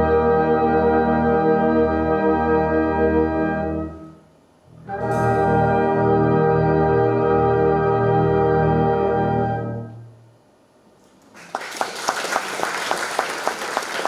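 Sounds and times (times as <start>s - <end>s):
brass band playing chords: 0.0s - 10.3s.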